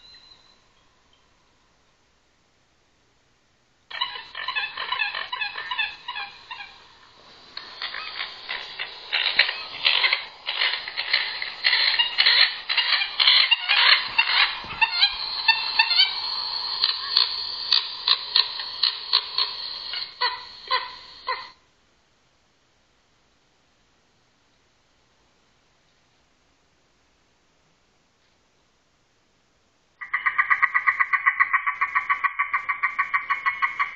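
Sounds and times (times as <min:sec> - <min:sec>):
recorded bird calls on speaker: 0:00.0 - 0:01.0, 0:03.9 - 0:21.6, 0:30.0 - 0:33.9.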